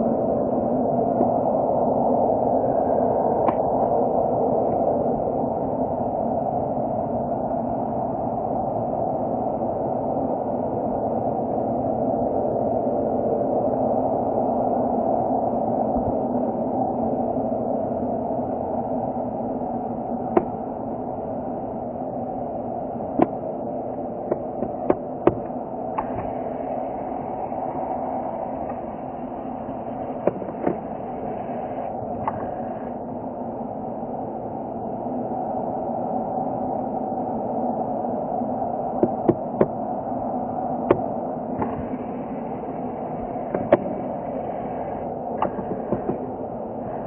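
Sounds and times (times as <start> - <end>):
jet engines rumbling: 14.2 - 47.0.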